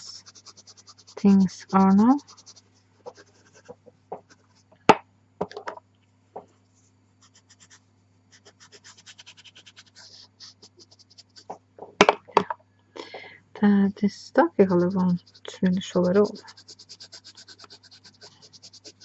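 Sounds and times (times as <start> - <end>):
pastel pencil scraping on paper: 0.0 - 4.6, 7.2 - 11.6, 14.5 - 19.0.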